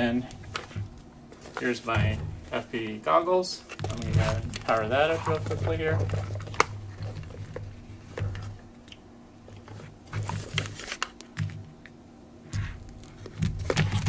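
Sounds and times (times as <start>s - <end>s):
plastic goggles handling noise: 0.2s - 2.6s, 3.6s - 8.6s, 9.5s - 12.0s.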